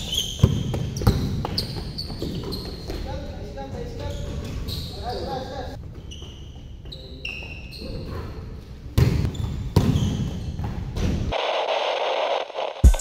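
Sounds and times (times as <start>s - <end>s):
sneakers squeaking on floor: 0.0s - 11.2s
basketball bouncing: 0.4s - 2.7s, 9.0s - 11.2s.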